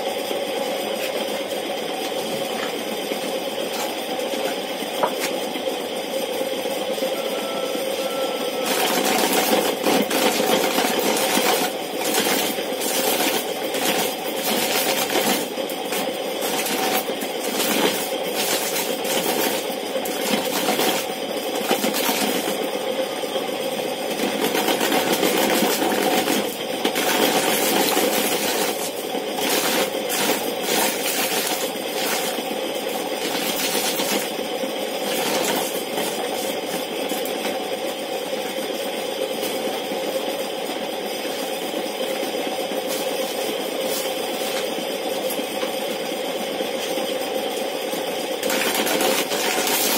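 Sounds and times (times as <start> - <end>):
corn sheller motor humming: 0.0 - 49.9
corn kernels clattering: 8.6 - 22.6, 24.2 - 34.4, 35.0 - 36.6, 48.4 - 49.9.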